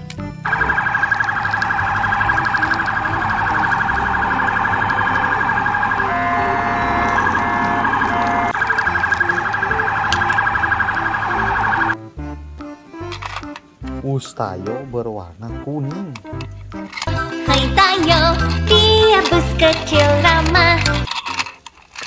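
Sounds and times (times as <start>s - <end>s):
police siren: 0.4s - 12.0s.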